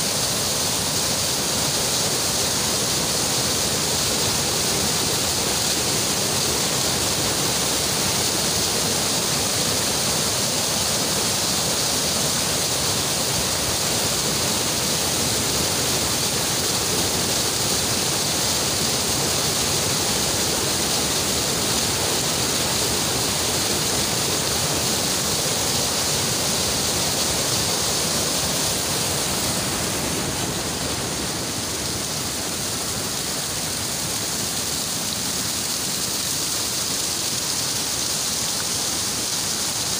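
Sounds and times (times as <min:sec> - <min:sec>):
water cascading over rocks: 0:00.0 - 0:39.9.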